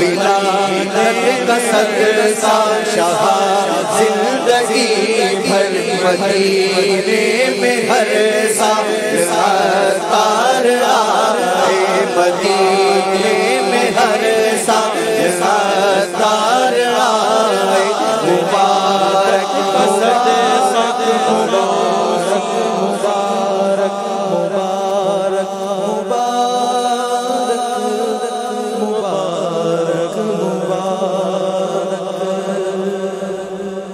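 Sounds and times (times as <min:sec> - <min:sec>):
men chanting devotional song: 0:00.0 - 0:33.9.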